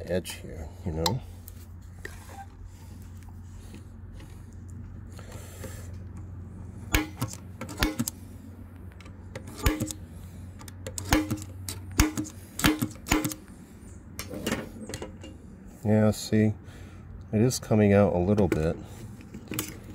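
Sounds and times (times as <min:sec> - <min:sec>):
sharp metallic punch clicks: 0:06.9 - 0:08.2, 0:09.4 - 0:10.0, 0:10.6 - 0:13.5.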